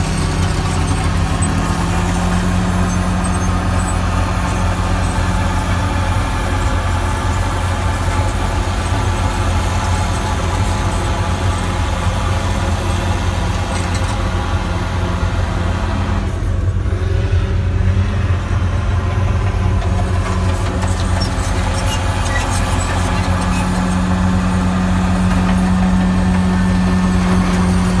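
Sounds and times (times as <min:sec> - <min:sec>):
heavy equipment engines droning: 0:00.0 - 0:28.0.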